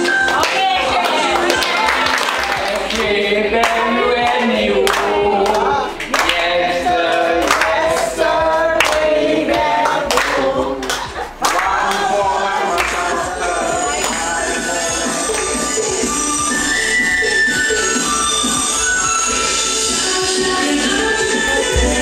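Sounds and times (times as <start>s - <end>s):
hand claps: 0.0s - 12.1s, 12.8s - 13.1s, 15.3s - 15.6s
voices singing together: 0.0s - 22.0s.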